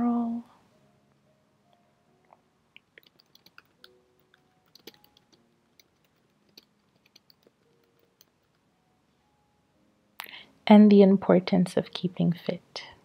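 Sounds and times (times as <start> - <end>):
keyboard typing: 2.8 - 8.7.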